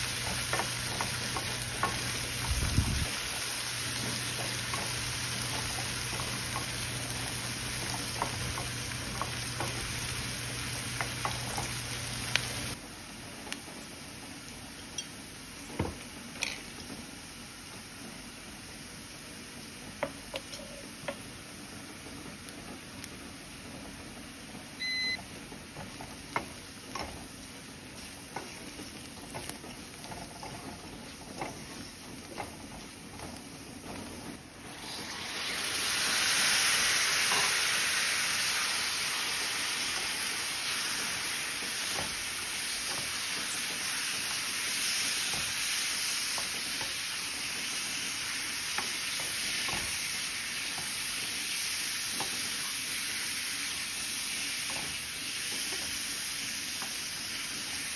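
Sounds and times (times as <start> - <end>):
chicken sizzling loudly: 0.0 - 14.7, 20.8 - 57.9
onions cooking softly in pan: 0.0 - 57.9
brief beep: 24.8 - 25.2.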